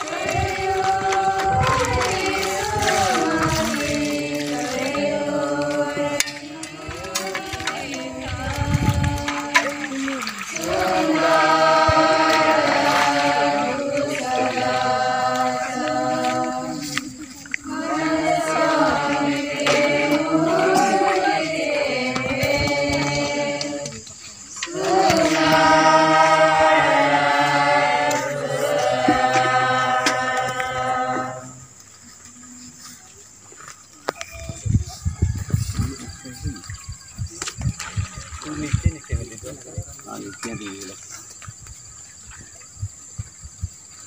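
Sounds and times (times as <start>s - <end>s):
group singing a hymn: 0.0s - 32.0s.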